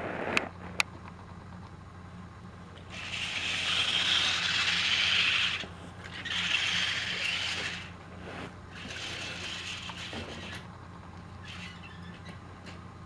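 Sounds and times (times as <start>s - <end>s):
faint steady hum: 0.0s - 13.0s
bursts of hissing noise: 2.9s - 8.0s.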